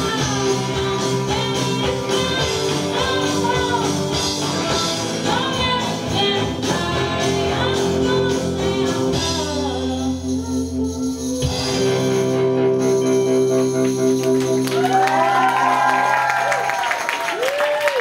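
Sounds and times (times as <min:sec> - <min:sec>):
person singing lead vocal: 0:00.0 - 0:11.4
rock band playing: 0:00.0 - 0:16.7.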